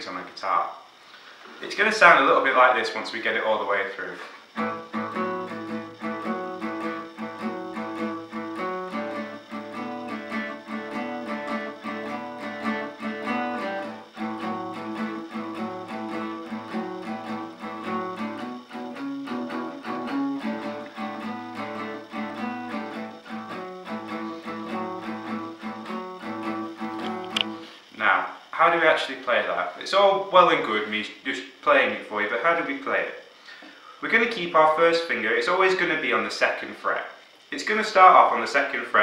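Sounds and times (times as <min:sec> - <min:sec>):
acoustic guitar blues shuffle: 0:04.3 - 0:28.0.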